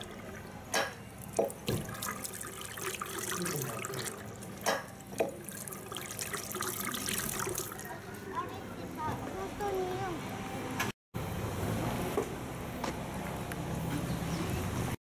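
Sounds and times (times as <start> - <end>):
sharp knocks or splashes: 0.7 - 7.7
tap water splashing into sink: 0.7 - 7.7.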